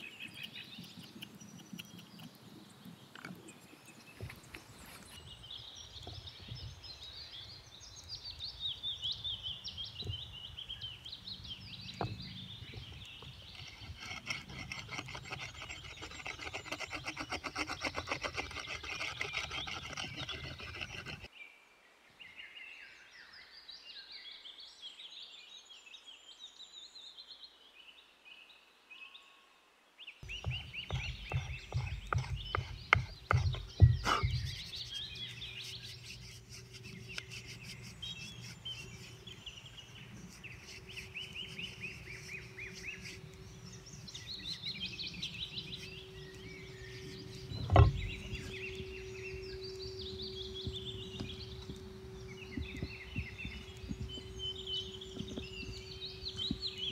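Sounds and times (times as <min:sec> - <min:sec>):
songbirds singing: 0:00.0 - 0:56.9
stone scraping wooden handle: 0:12.8 - 0:21.3, 0:30.2 - 0:56.9
steady low hum: 0:30.3 - 0:56.9.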